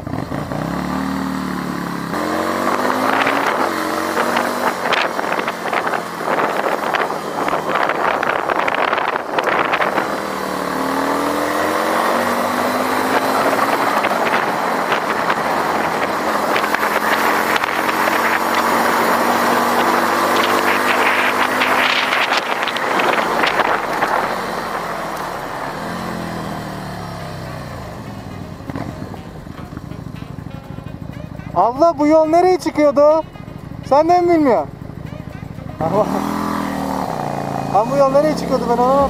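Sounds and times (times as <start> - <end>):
motorcycle engine running: 0.0 - 39.0
wind and road rush: 0.0 - 39.0.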